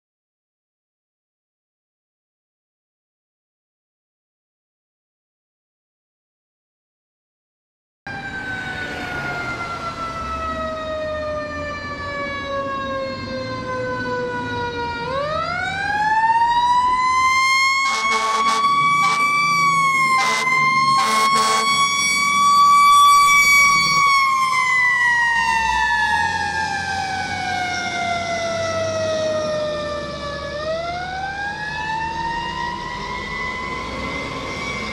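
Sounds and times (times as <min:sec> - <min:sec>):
fire engine siren wailing: 0:08.1 - 0:34.9
harsh horn blasts: 0:17.8 - 0:19.4, 0:20.2 - 0:21.9.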